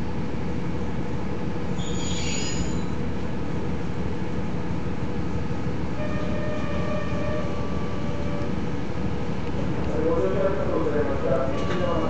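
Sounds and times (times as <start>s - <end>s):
high squeal: 1.8s - 3.0s.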